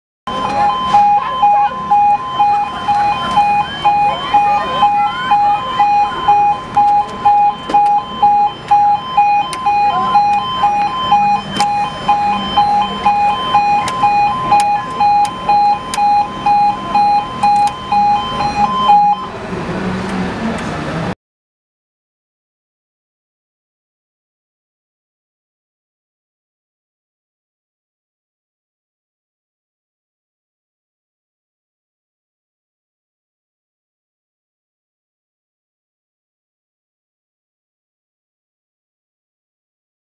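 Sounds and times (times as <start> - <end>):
two-tone level crossing alarm: 0.3 - 19.4.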